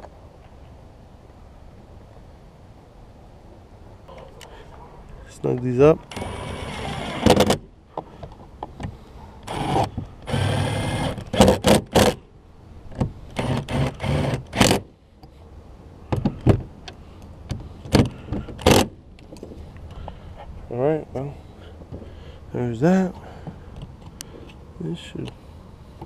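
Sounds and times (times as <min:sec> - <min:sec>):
cordless driver motor whirring: 0:06.1 - 0:07.5, 0:09.4 - 0:12.2.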